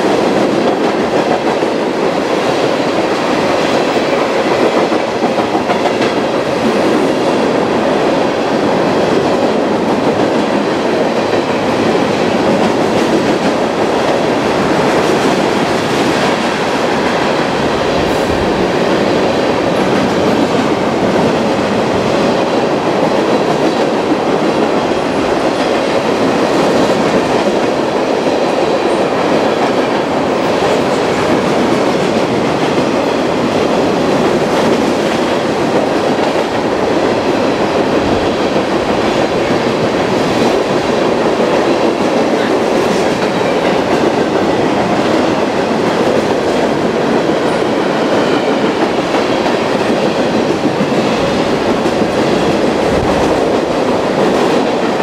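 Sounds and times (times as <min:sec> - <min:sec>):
freight train wheels on rail: 0:00.0 - 0:55.0.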